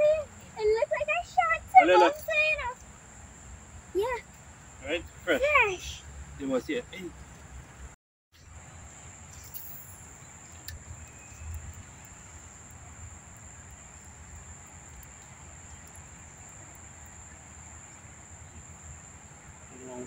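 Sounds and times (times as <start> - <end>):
high-pitched insect buzz: 8.4 - 20.0
faint clicks: 10.4 - 17.2.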